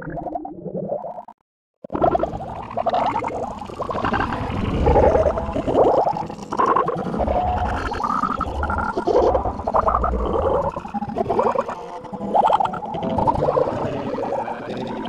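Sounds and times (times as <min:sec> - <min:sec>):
distorted warbling gurgling sounds: 0:00.0 - 0:15.0
constant deep rumble: 0:03.5 - 0:10.8.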